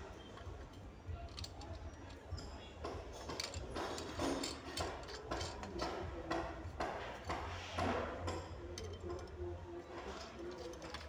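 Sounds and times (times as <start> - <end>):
lamp parts clicking and rubbing: 0.2 - 6.0, 8.7 - 11.0.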